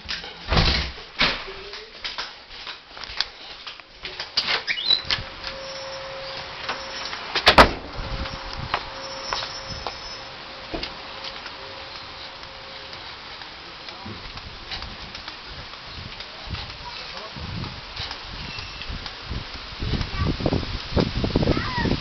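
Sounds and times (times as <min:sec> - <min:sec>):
short rising squeak: 0:04.6 - 0:07.4, 0:08.0 - 0:10.7, 0:18.4 - 0:18.9.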